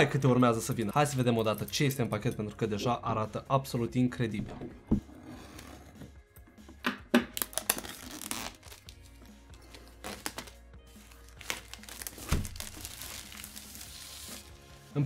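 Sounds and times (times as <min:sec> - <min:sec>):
background music: 0:00.0 - 0:15.0
plastic shrink-wrap crinkling and tearing: 0:07.3 - 0:15.0.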